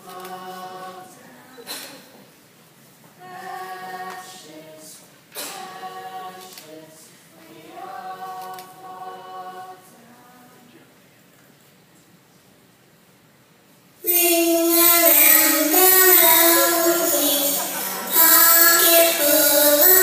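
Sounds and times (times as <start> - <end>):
choir singing long notes: 0.0 - 1.4, 3.2 - 10.6, 14.0 - 20.0.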